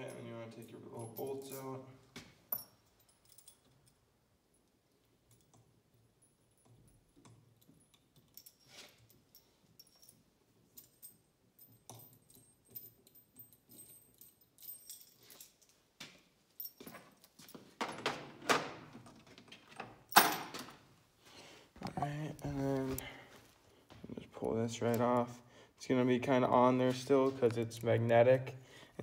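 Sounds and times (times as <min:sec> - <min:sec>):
faint metallic clicks and clinks: 0:00.0 - 0:01.9, 0:02.5 - 0:17.7.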